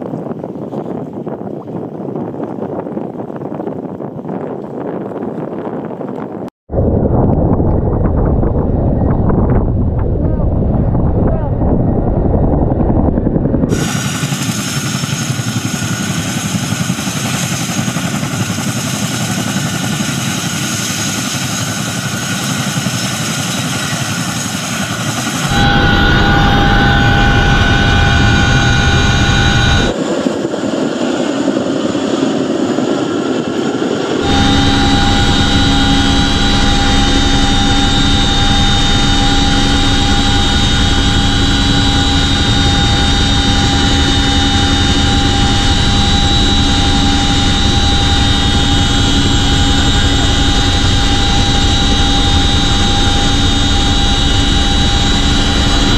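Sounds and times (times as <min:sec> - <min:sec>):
helicopter rotor noise: 0:00.0 - 0:55.9
helicopter engines whining: 0:07.4 - 0:55.9
high-pitched engine tones: 0:23.6 - 0:30.0, 0:34.2 - 0:55.9.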